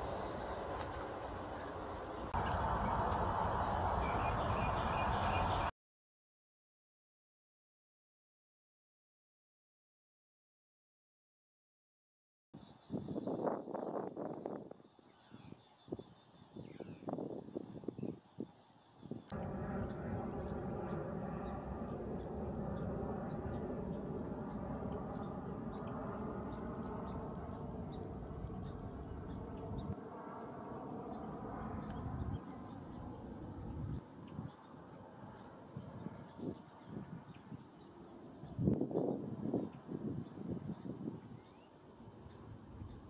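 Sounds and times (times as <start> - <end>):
high-pitched insect trill: 12.6 - 43.0
low rumbling drone: 19.3 - 34.0.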